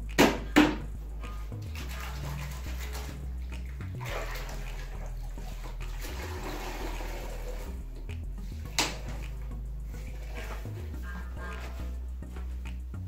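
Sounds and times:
water running and splashing: 0.0s - 12.6s
background music: 0.0s - 13.0s
sharp knock: 0.2s - 0.8s.

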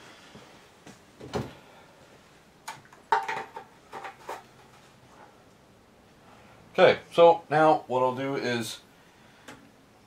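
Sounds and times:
gas can set down: 3.1s - 4.4s.

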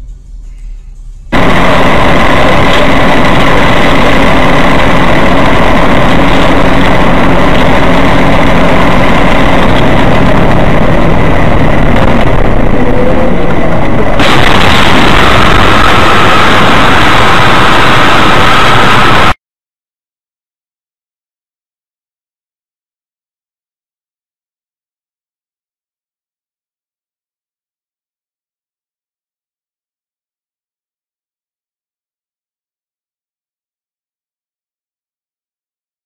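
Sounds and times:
vehicle engine and road noise: 0.0s - 19.4s.

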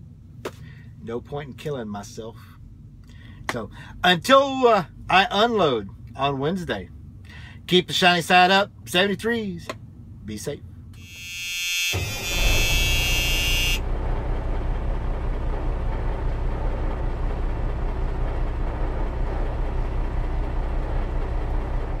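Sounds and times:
large vehicle engine rumbling: 0.0s - 22.0s
high-pitched tone: 11.0s - 13.8s.

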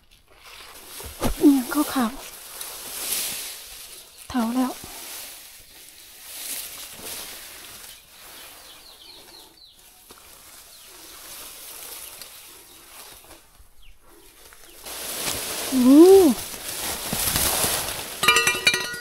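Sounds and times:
grass and leaves rustling: 0.0s - 19.0s
bird chirps: 7.8s - 11.4s.

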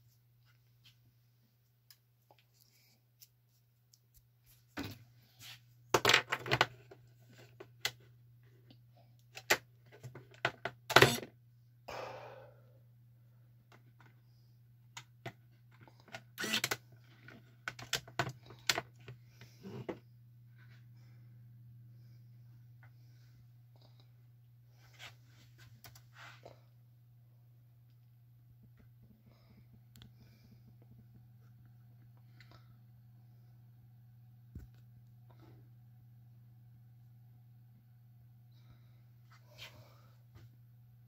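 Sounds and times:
steady low hum: 10.9s - 41.0s.

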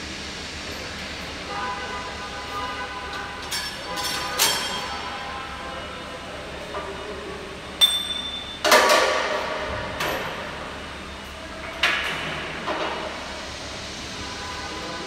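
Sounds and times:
ringing metallic clanks: 7.8s - 9.1s.

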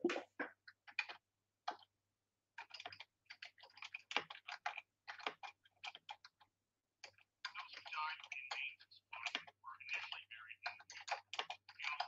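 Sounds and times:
computer keyboard key clicks: 2.6s - 6.4s, 9.2s - 12.0s.

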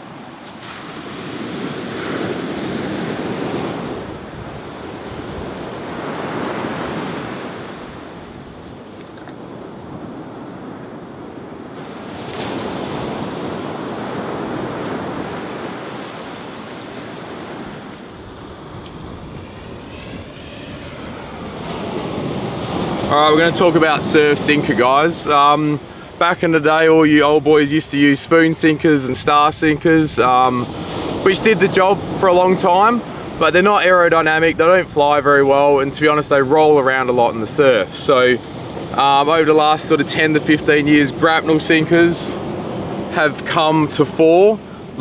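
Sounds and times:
wind on microphone: 0.0s - 26.2s
ocean surf breaking: 0.0s - 45.0s.

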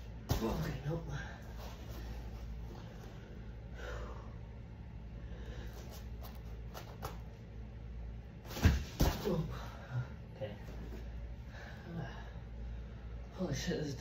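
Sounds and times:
low hum: 0.0s - 14.0s
person breathing: 1.1s - 4.5s, 5.1s - 6.2s, 11.4s - 13.3s.

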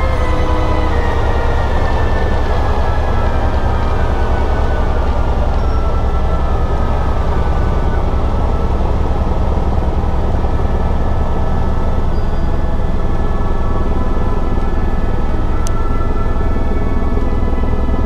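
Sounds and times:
helicopter engine whine: 0.0s - 18.0s
helicopter rotor throb: 0.0s - 18.0s.

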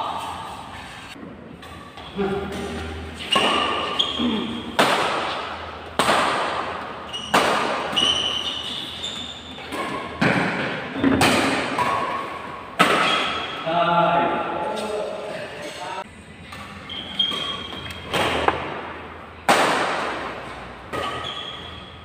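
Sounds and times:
rackets striking shuttlecock: 1.6s - 8.7s, 9.6s - 13.6s.

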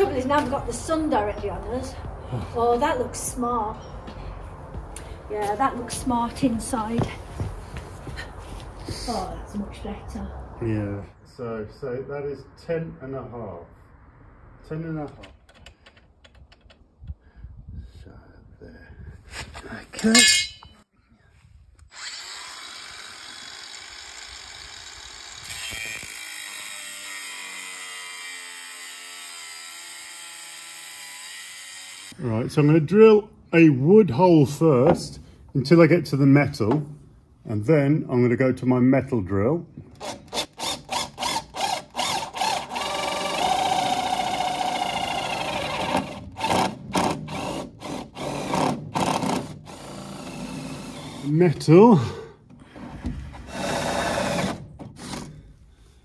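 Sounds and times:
grinder disc cutting steel: 20.0s - 20.8s, 21.9s - 32.2s
angle grinder starting up: 21.9s - 32.2s
cordless drill boring wood: 21.9s - 32.2s, 40.0s - 51.3s, 53.5s - 55.4s.

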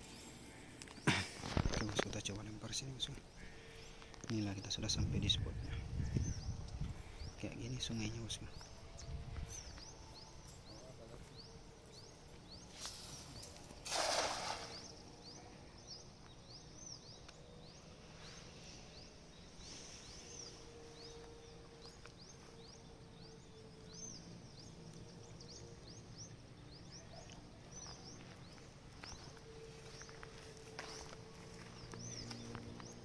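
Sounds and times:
faint outdoor ambience: 0.0s - 33.0s
cast net swish: 12.7s - 14.9s
short rising bird chirps: 12.7s - 15.1s
net splashing into river: 12.9s - 14.9s.

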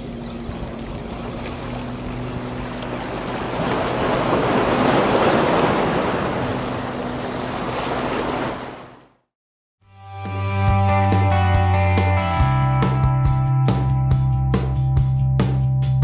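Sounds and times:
waves washing against rocks: 1.7s - 9.0s.

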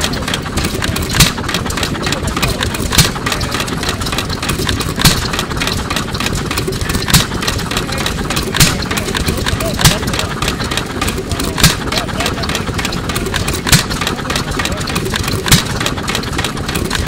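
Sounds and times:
engine firing bangs: 0.0s - 17.0s
engine mechanical clatter: 0.0s - 17.0s.

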